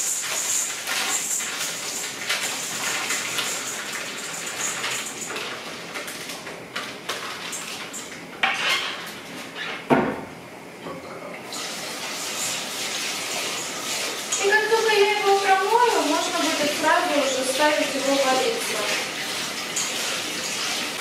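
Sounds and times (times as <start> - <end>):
tap water running into sink: 0.0 - 8.2, 11.4 - 21.0
pots and dishes clattering: 0.0 - 10.2.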